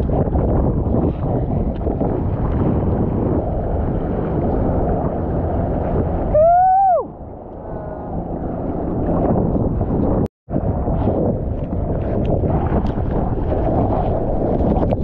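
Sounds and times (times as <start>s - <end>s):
ocean water churning and sloshing: 0.0s - 15.0s
wind on microphone: 0.0s - 15.0s
person whooping: 6.3s - 8.1s.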